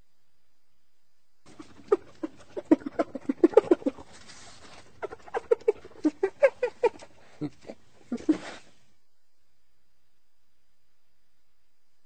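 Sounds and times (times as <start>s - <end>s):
hyena giggling calls: 1.5s - 8.8s.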